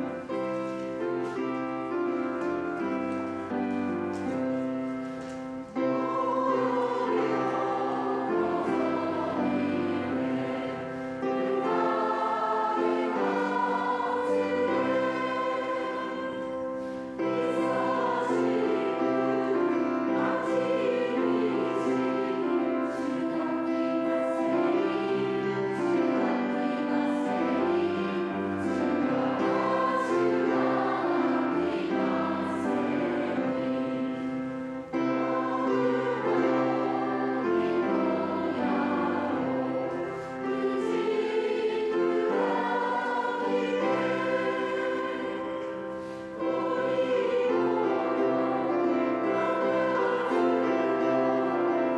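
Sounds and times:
choir singing a hymn: 0.0s - 51.9s.

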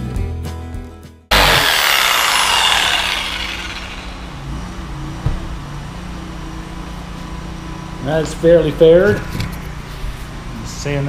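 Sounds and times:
jigsaw motor spinning down: 1.3s - 4.5s.

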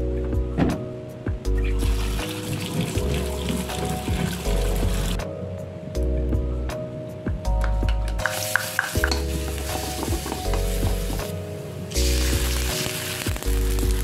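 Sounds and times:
spatula tapping pan: 8.2s - 9.3s
food sizzling in hot oil: 8.2s - 14.0s.

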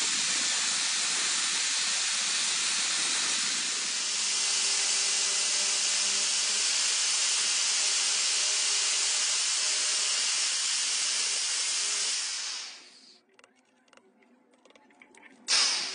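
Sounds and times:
drill disc cutting plastic pipe: 0.0s - 10.2s.

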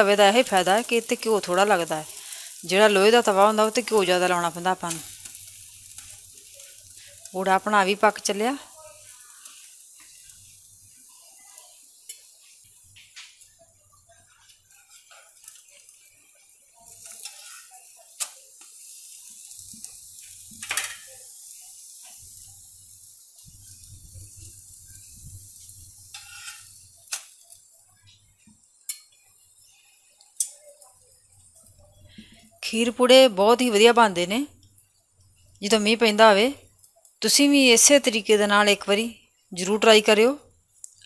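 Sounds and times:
pancake sizzling in a pan: 0.0s - 41.0s
metal spatula scraping a pan: 14.1s - 21.4s, 23.5s - 27.5s.

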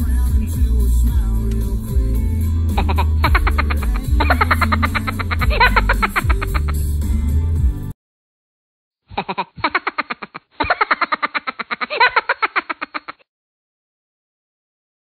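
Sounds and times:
music: 0.0s - 8.0s.

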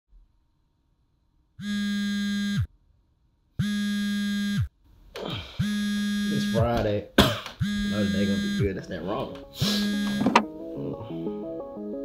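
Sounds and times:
vibrating buzzer: 1.6s - 2.7s, 3.6s - 4.7s, 5.6s - 6.8s, 7.6s - 8.8s, 9.6s - 10.4s.

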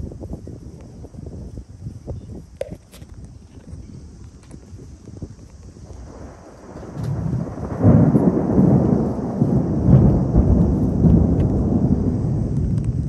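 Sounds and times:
thunder rumbling: 3.7s - 13.0s.

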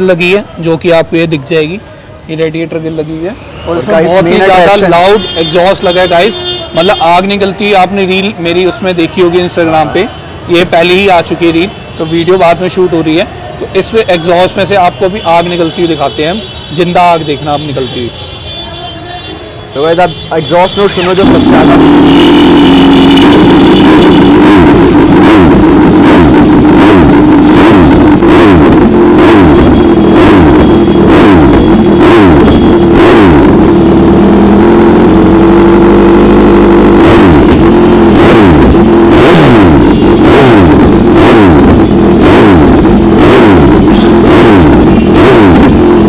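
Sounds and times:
motorcycle engine revving: 19.8s - 46.0s.

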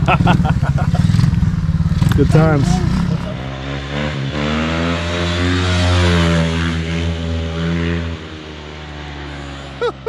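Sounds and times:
pit bike engine running: 0.0s - 8.0s.

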